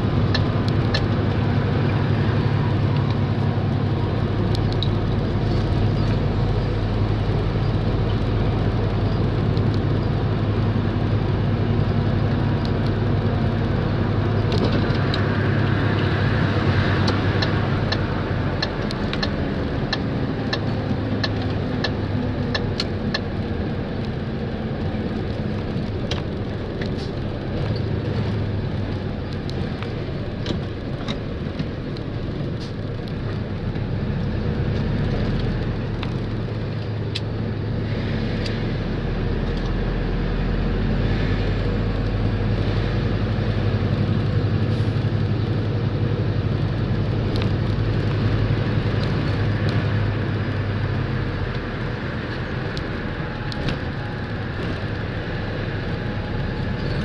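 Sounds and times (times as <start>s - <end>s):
vehicle engine drone: 0.0s - 57.0s.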